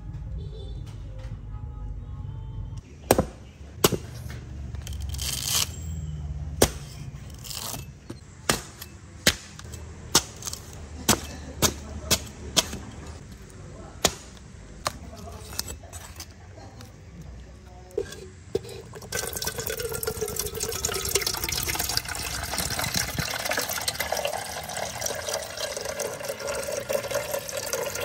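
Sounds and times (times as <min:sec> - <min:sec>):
cleaver chopping coconut husk: 0:03.1 - 0:04.2, 0:06.5 - 0:16.2.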